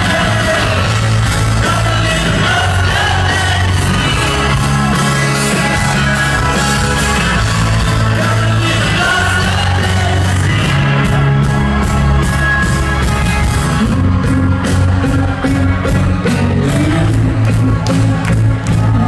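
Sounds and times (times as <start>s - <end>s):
person singing: 0.0s - 6.6s, 7.8s - 11.5s, 13.8s - 19.0s
electric guitars: 0.0s - 19.0s
rock band playing live: 0.0s - 19.0s.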